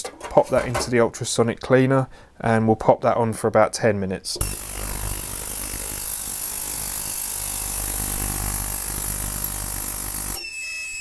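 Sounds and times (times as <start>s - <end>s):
ultrasonic cleaner hissing buzz: 4.4s - 10.4s.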